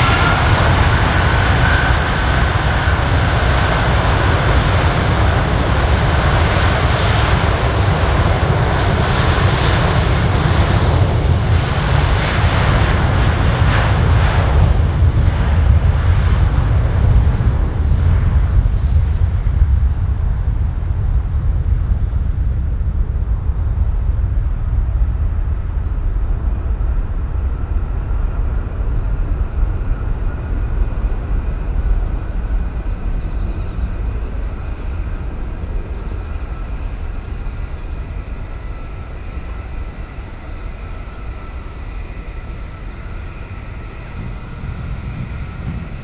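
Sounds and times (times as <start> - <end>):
jet engine rumble: 0.0 - 46.0
faint whining engine tones: 23.7 - 46.0.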